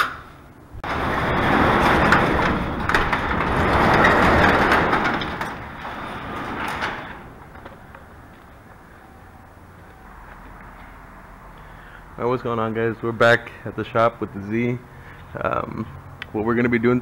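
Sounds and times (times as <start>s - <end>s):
roll-up door being raised: 0.8s - 9.3s.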